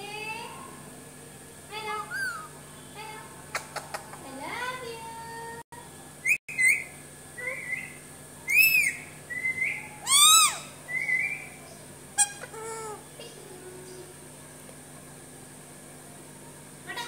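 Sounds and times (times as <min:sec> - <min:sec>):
parakeet whistling: 0:02.1 - 0:02.6, 0:06.2 - 0:07.0, 0:07.6 - 0:11.6.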